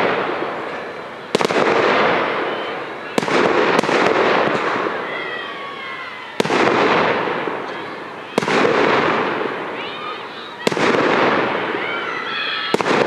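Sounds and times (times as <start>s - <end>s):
fireworks bursting with echo: 0.0s - 13.0s.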